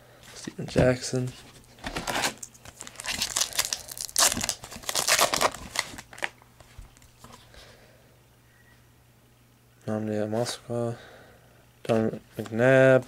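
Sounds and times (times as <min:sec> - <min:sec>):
foil wrapper crinkling and tearing: 0:02.0 - 0:06.4.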